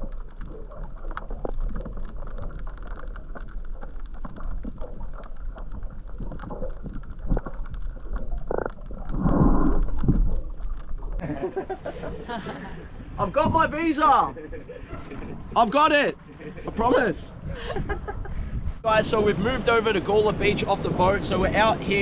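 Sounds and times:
small clicks and crackles: 0.0s - 11.2s
muffled underwater rumble: 0.0s - 13.6s.

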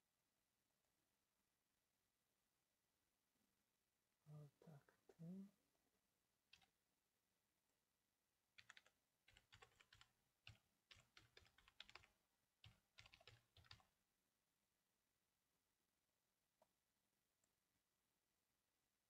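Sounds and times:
faint keyboard typing: 6.5s - 6.8s, 8.6s - 14.0s.

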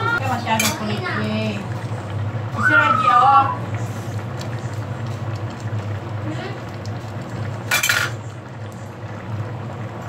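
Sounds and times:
vegetables simmering: 0.0s - 10.0s
kitchenware clatter: 0.3s - 0.9s, 7.6s - 8.3s.

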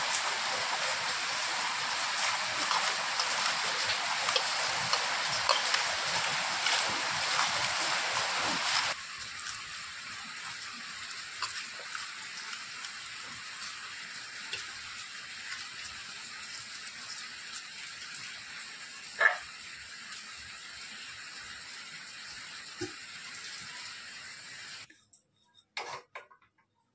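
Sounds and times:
steady hiss: 0.0s - 15.1s.

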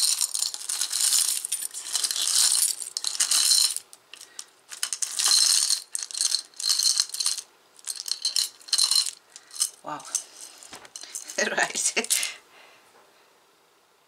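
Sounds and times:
jewelry rattling in glass jar: 0.0s - 12.3s.

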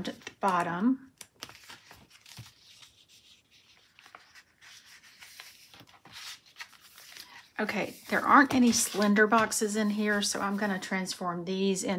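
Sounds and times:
paper pages rustling: 0.0s - 10.9s.

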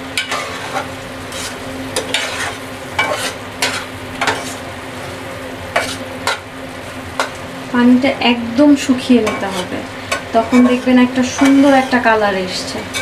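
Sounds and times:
sauce sizzling: 0.0s - 13.0s
metal spatula scraping pot: 0.2s - 4.6s, 5.7s - 6.4s, 9.2s - 12.2s, 12.8s - 13.0s.

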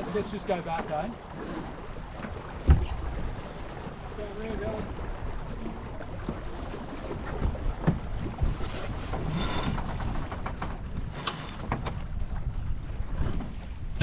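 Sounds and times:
water washing along hull: 0.0s - 14.0s
short high squeaks: 9.2s - 10.1s.

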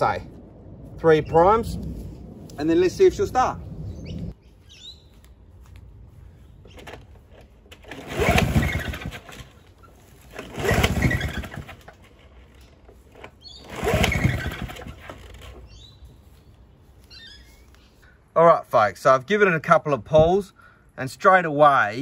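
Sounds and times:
lawnmower engine pull-starting: 6.6s - 15.9s.

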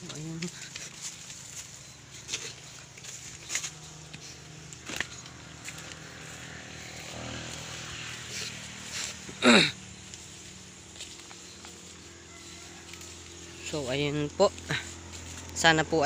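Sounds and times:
footsteps through undergrowth: 0.0s - 16.0s
leaves and ferns swishing: 0.0s - 16.0s
low motor hum: 0.0s - 16.0s
twigs snapping: 2.3s - 6.2s.

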